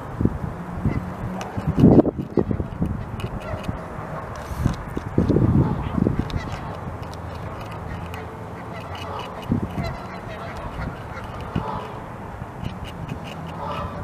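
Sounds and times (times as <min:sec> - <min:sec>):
beavers gnawing wood: 0:01.0 - 0:14.0
distant waterfowl calling: 0:05.6 - 0:12.1, 0:12.7 - 0:14.0.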